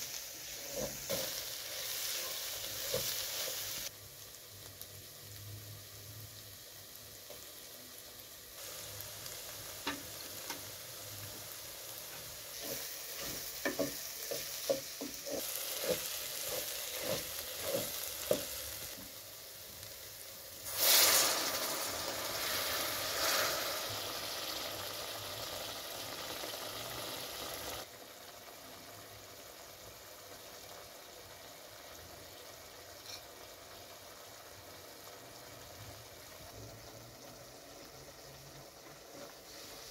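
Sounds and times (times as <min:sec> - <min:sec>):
herbs frying in a pot: 0:00.0 - 0:39.9
water hissing on hot pot: 0:00.0 - 0:39.9
spoon tapping in a pot: 0:13.2 - 0:15.4.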